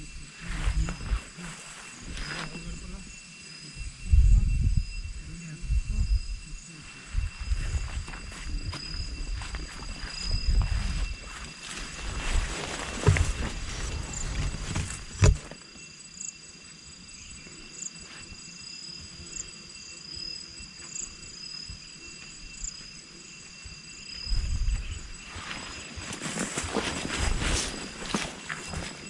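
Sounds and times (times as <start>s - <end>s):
high insect drone: 0.0s - 29.0s
footsteps on dirt trail: 7.2s - 15.6s, 23.6s - 29.0s.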